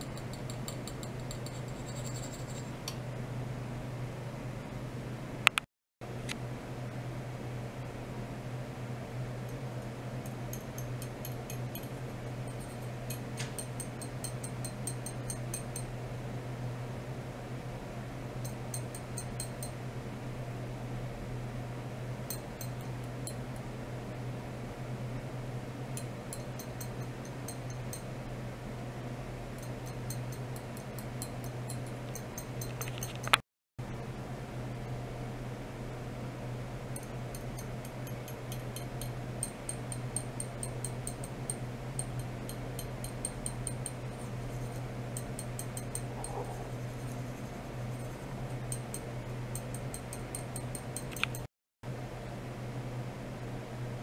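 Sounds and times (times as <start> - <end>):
low electrical hum: 0.0 - 54.0
high-pitched ticks: 37.0 - 46.5, 48.0 - 51.5.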